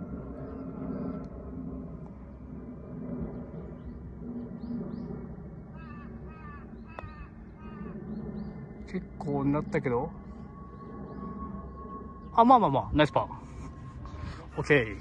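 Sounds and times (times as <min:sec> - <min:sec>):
low outdoor rumble: 0:00.0 - 0:15.0
faint bird calls: 0:04.6 - 0:08.9
crow cawing: 0:05.7 - 0:08.0.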